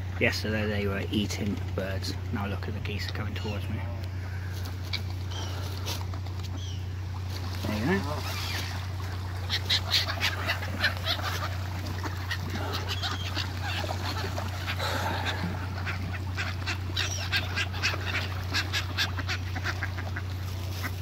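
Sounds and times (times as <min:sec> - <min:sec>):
steady low hum: 0:00.0 - 0:21.0
geese honking: 0:03.2 - 0:21.0.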